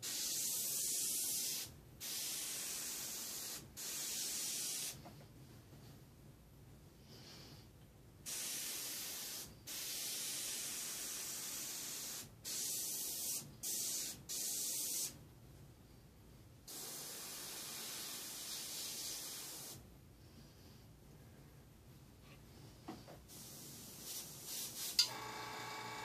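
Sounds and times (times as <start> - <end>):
airbrush spraying: 0.0 - 5.1, 8.3 - 15.2, 16.7 - 19.8, 23.3 - 25.1.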